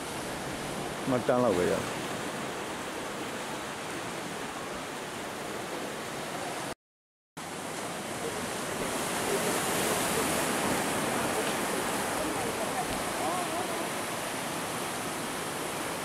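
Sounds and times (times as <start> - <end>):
surf breaking over rocks: 7.4 - 16.0.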